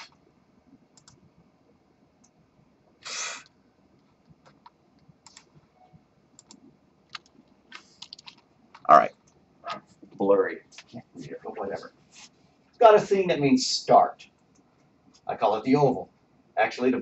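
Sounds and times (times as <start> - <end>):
computer mouse clicks: 1.0 - 1.2, 4.3 - 5.5, 6.4 - 9.8
keyboard clicks: 1.0 - 1.2, 4.0 - 5.5, 6.4 - 9.8.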